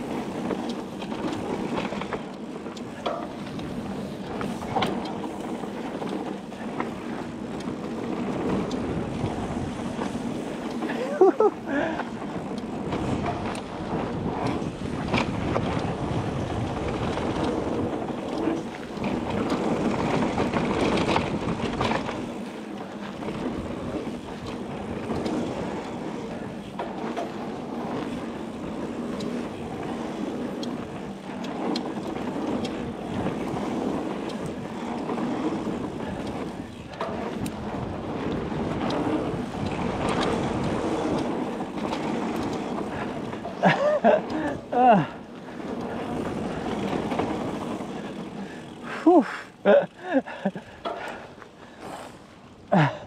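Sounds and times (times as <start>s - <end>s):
bike knocking and rattling: 0.0s - 53.0s
bike tyres rumbling on dirt: 0.0s - 53.0s
wind on microphone: 7.0s - 22.4s, 27.6s - 49.6s.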